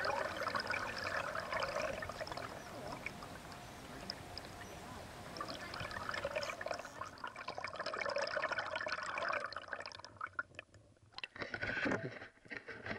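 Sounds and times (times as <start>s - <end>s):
paddle splashing in water: 0.0s - 7.7s
water drips: 0.0s - 11.4s.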